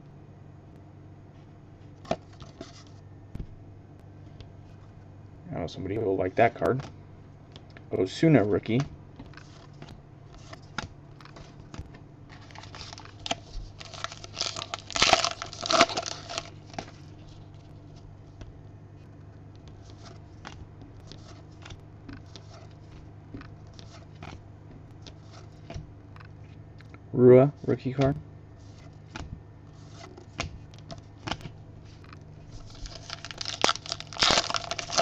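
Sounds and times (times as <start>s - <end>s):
cards rustling together: 8.7s - 18.5s, 19.2s - 24.4s, 25.0s - 26.6s, 28.6s - 35.0s.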